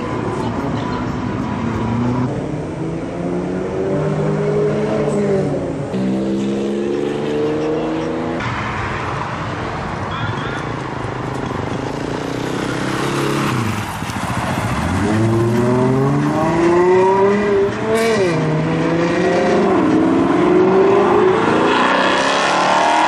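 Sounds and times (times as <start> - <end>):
car engine revving: 12.3 - 23.0.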